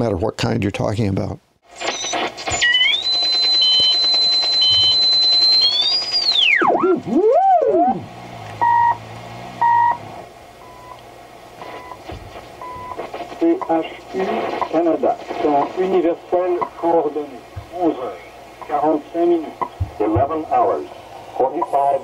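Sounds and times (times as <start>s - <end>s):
short time signal beeps: 1.8s - 6.4s, 8.6s - 9.0s.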